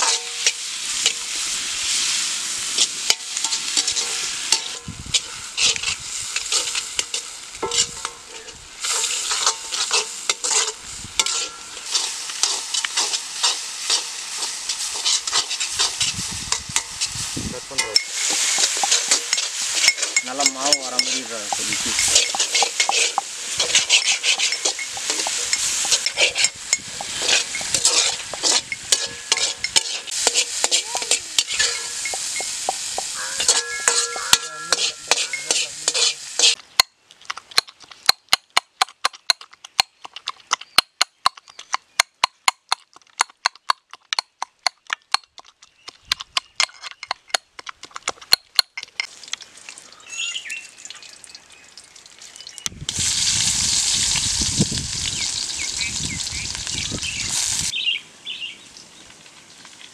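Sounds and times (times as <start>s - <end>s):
ladle scraping and stirring: 0.0s - 17.1s, 17.7s - 37.9s
tomatoes sizzling in hot oil: 0.0s - 36.6s, 49.0s - 59.9s
pestle pounding in steel cup: 17.8s - 36.6s.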